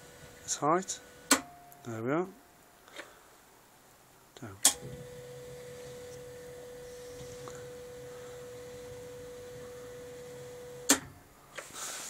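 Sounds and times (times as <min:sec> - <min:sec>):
wiper motor whining: 0:04.8 - 0:11.7.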